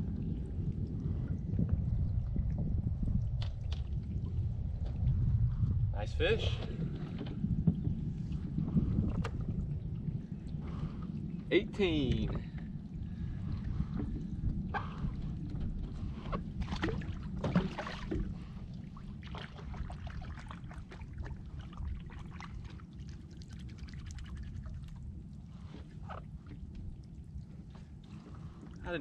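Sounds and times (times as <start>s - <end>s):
low rumble: 0.0s - 29.0s
water sloshing around a boat: 0.0s - 29.0s.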